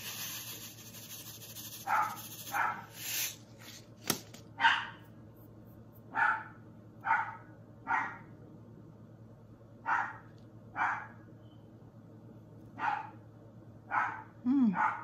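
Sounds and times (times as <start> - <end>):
dog barking: 1.8 - 2.9, 4.6 - 5.0, 6.1 - 8.3, 9.8 - 11.2, 12.8 - 13.2, 13.9 - 15.0.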